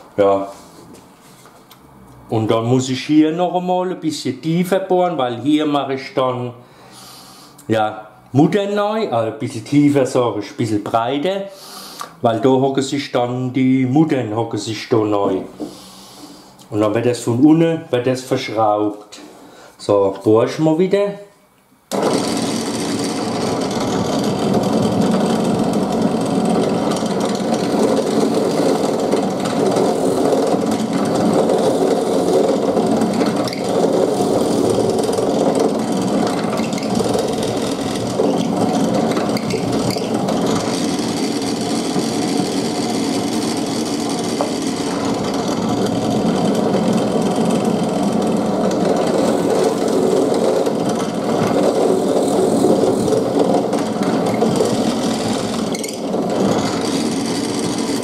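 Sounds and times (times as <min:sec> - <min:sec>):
drill bit boring into wood: 0:21.9 - 0:58.0
drill press motor running: 0:21.9 - 0:58.0.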